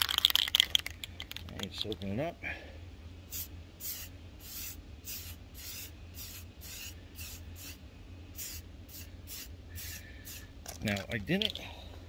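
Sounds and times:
aerosol spray can hissing: 3.3 - 7.8, 8.4 - 10.5.

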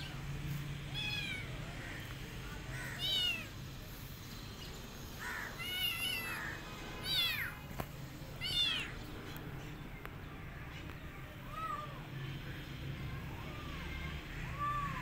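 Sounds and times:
kitten meowing: 8.4 - 8.9.

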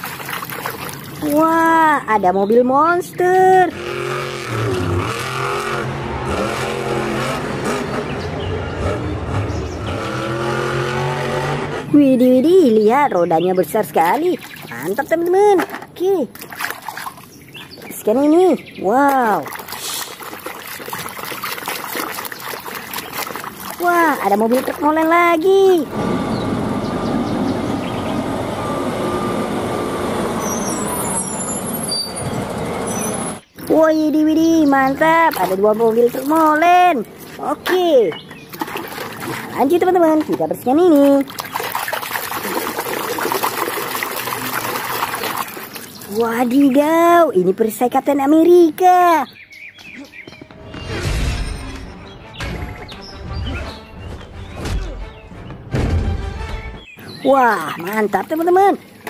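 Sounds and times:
truck engine revving: 3.5 - 12.0, 25.7 - 33.5
truck engine running: 25.2 - 33.5.

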